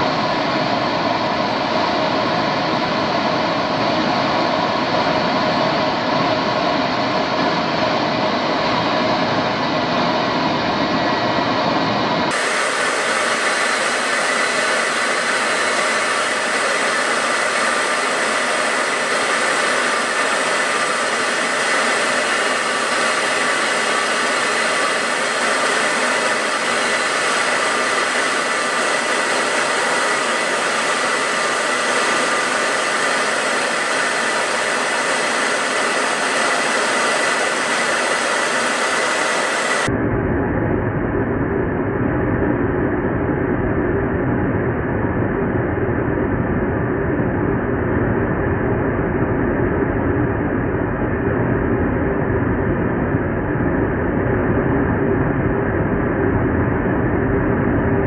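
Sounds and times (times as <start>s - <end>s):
jet engine and rushing airflow: 0.0s - 40.1s.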